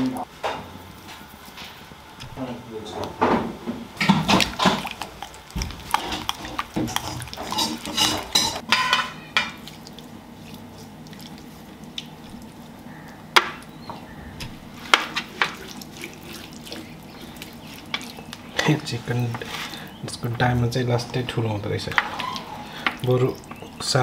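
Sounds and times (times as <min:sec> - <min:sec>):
metal spoon scraping glass bowl: 0:06.2 - 0:09.1
hands rubbing marinade on duck: 0:14.4 - 0:19.9.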